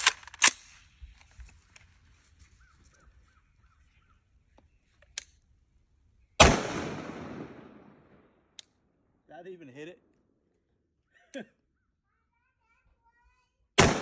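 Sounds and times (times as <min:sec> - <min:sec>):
rifle shot with echo: 0:06.4 - 0:08.4, 0:13.8 - 0:14.0.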